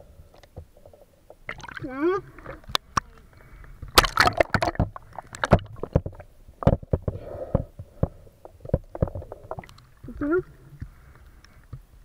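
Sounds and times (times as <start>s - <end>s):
water splashing: 1.5s - 3.2s, 3.8s - 6.8s.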